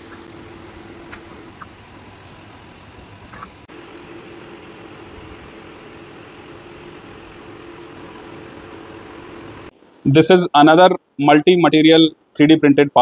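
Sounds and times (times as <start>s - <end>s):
three d printer fans whirring: 0.0s - 10.1s.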